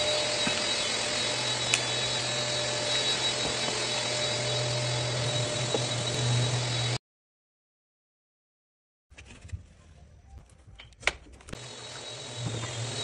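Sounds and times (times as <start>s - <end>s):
whooshing machine hum: 0.0s - 7.0s.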